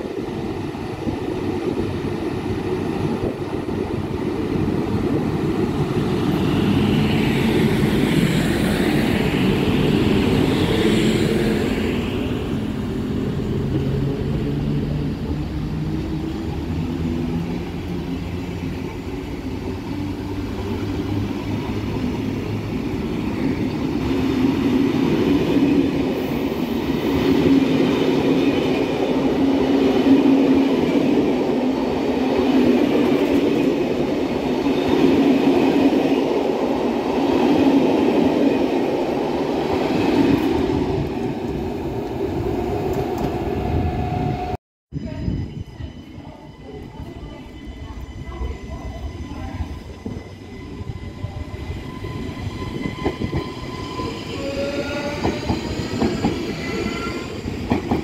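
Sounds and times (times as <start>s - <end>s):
high locomotive whine: 0.0s - 58.0s
train wheels rumbling over rails: 46.7s - 58.0s.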